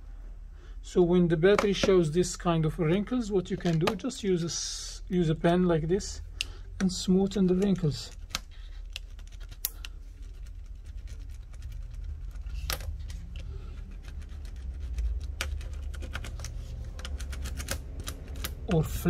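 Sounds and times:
low steady hum: 0.0 - 19.0
pen rubbing crinkling foil: 7.7 - 12.7, 13.6 - 17.5.

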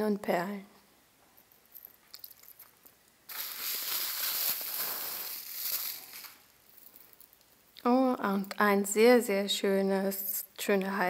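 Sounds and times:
bubble wrap crinkling: 2.2 - 7.5.

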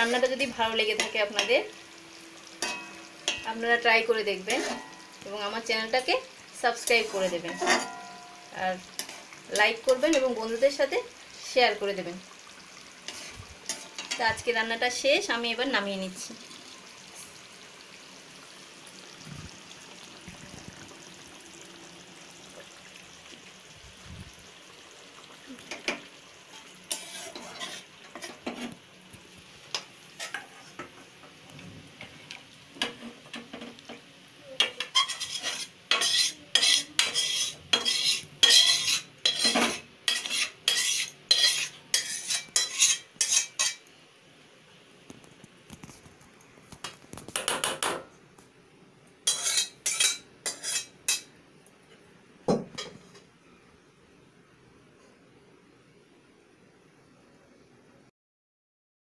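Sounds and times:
metal spatula scraping a pan: 2.5 - 3.5, 4.3 - 5.2, 6.7 - 10.7, 13.0 - 14.4, 25.7 - 28.8, 29.7 - 31.2, 32.8 - 34.0, 34.6 - 43.9, 49.2 - 51.3.

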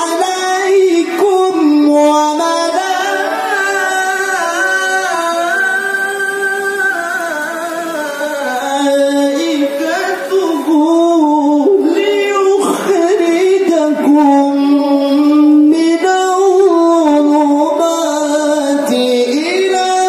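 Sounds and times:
man reciting melodically: 0.0 - 20.0.

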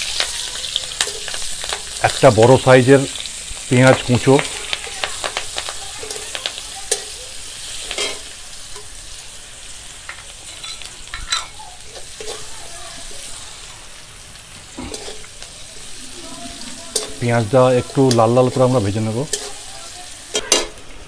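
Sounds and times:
onion sizzling in hot oil: 0.0 - 21.0
metal spatula scraping pan: 14.8 - 20.8.

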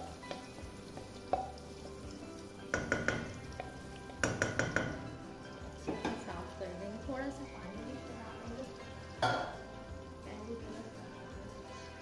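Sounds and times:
utensil clinking against metal pot: 0.0 - 6.4, 9.1 - 9.7
faint frying sizzle: 0.0 - 12.0.

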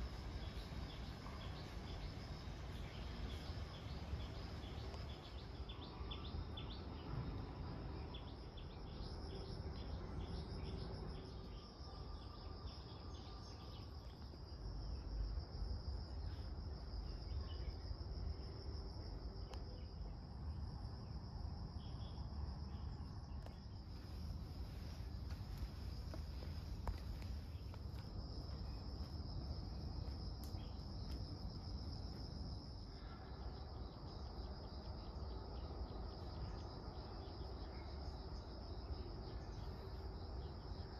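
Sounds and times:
insects chirring: 0.0 - 40.9.

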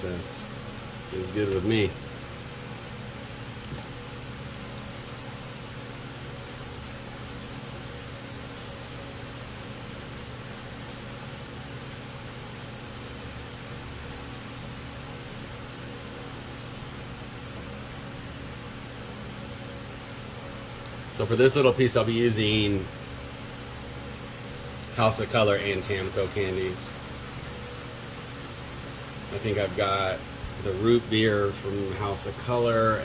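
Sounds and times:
steady low hum: 0.0 - 33.0
sanding block rubbing plastic: 4.7 - 17.1, 25.4 - 30.1.

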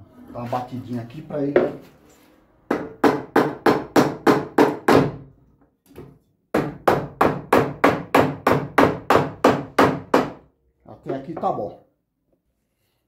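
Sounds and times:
hammer knocking on wood: 2.7 - 5.2, 6.0 - 10.4.

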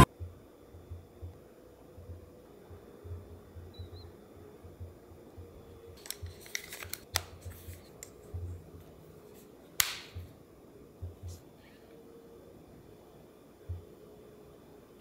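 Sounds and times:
small clicks and scrapes: 6.0 - 8.4.

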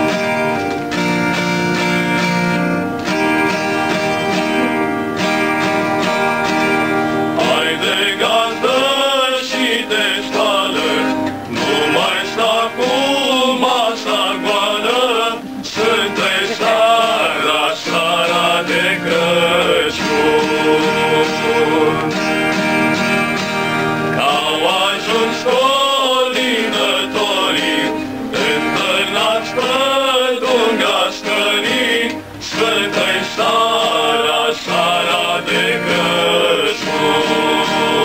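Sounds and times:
strummed acoustic guitar: 0.0 - 38.0
men singing a carol: 7.2 - 23.5, 24.1 - 38.0.

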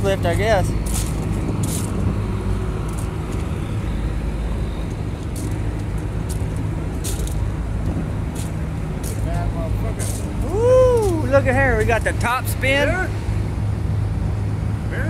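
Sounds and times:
large engine humming: 0.0 - 15.0
footsteps on gravel: 0.3 - 2.2, 4.9 - 11.2.

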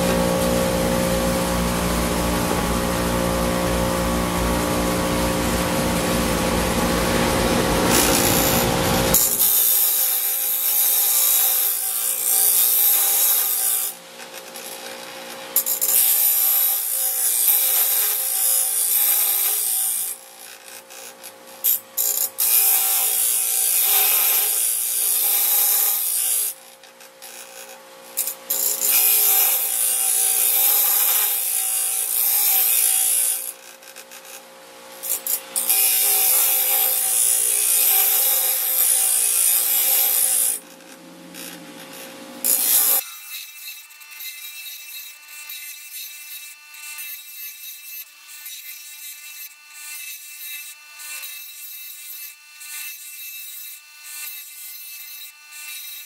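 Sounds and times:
motor humming: 0.0 - 9.3, 39.8 - 43.0
grinding wheel on steel: 0.0 - 43.2.

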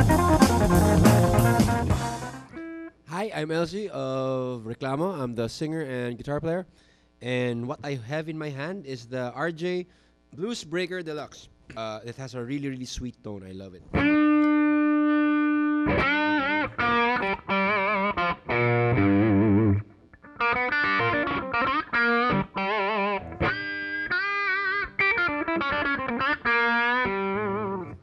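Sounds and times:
electric guitar lead: 0.0 - 3.1, 13.9 - 28.0.

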